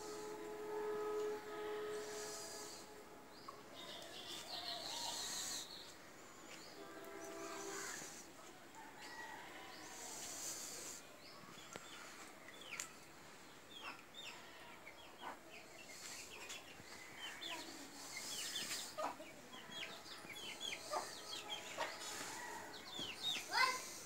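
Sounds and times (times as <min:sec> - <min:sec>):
chickens chirping and clucking: 0:10.2 - 0:24.0.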